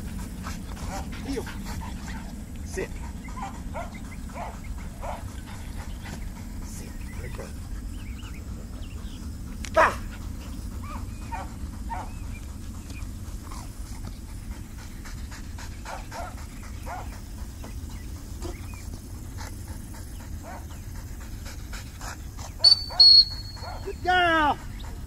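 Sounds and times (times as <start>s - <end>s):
dog whining: 10.8s - 12.2s, 22.6s - 24.7s.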